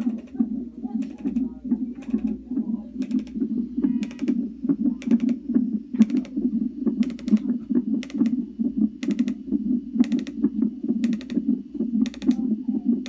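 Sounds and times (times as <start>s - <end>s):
rhythmic whooshing heartbeat: 0.0s - 13.0s
sharp clicks: 1.0s - 2.4s, 3.0s - 3.4s, 4.0s - 4.4s, 5.0s - 5.4s, 6.0s - 6.4s, 7.0s - 8.4s, 9.0s - 9.4s, 10.0s - 11.4s, 12.0s - 12.4s.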